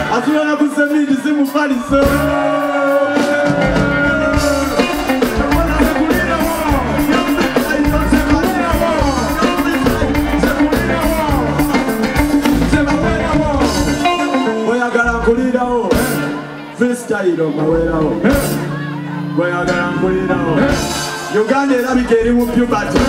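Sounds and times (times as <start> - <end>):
drum kit: 0.0 - 16.6, 17.8 - 18.8, 19.7 - 23.0
rapper singing: 0.0 - 23.0
bass guitar: 1.8 - 23.0
electric guitar: 1.9 - 16.8.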